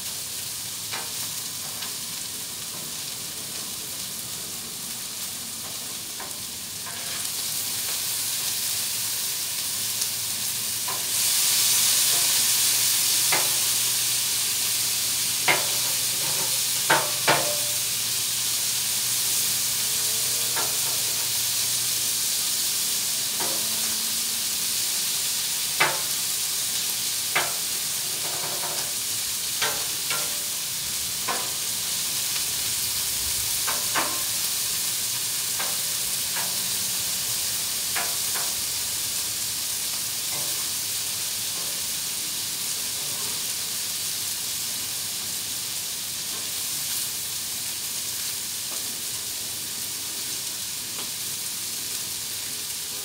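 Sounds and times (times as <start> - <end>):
meat sizzling on griddle: 0.0 - 53.0.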